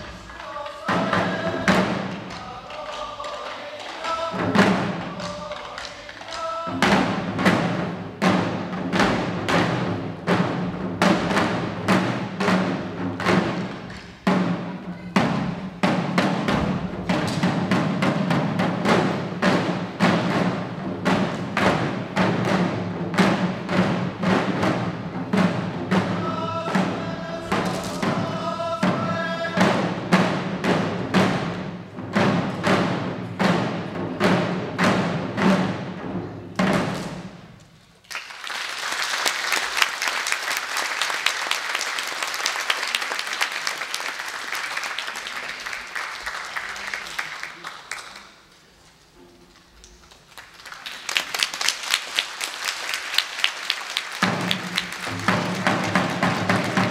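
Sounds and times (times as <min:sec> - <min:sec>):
taiko drums beaten in rhythm: 0:00.0 - 0:37.5, 0:54.2 - 0:56.9.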